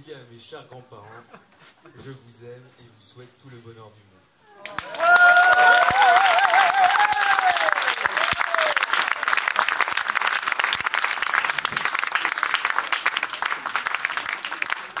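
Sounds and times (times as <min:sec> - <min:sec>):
people applauding: 0:04.6 - 0:15.0.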